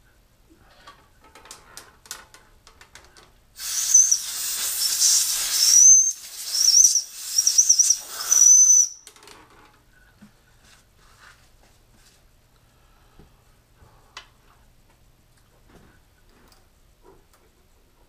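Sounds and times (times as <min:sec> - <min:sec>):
air blow gun hissing: 0:03.6 - 0:09.0.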